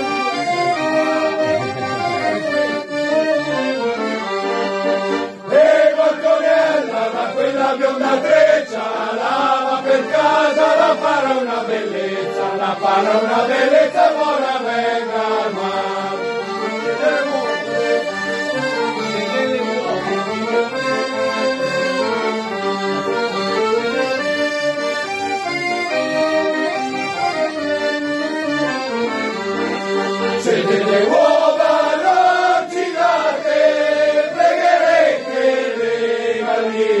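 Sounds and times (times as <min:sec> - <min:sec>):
accordions playing folk tune: 0:00.0 - 0:37.0
men singing: 0:05.5 - 0:18.0, 0:30.3 - 0:37.0.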